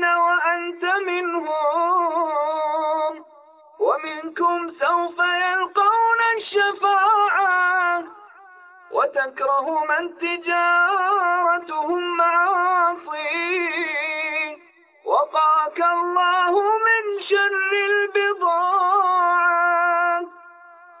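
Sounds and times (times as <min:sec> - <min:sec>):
man chanting with vibrato: 0:00.0 - 0:21.0.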